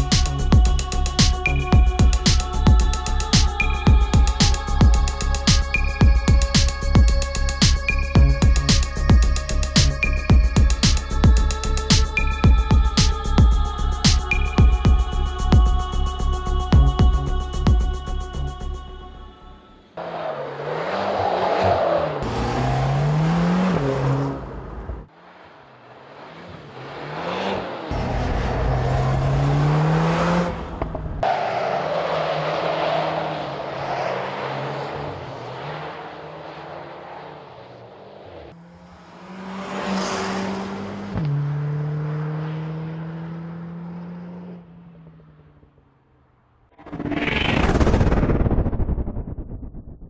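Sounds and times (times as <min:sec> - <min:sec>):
car engine accelerating: 0:19.9 - 0:50.0
car passing by: 0:20.0 - 0:45.5
loud rushing noise: 0:46.8 - 0:50.0.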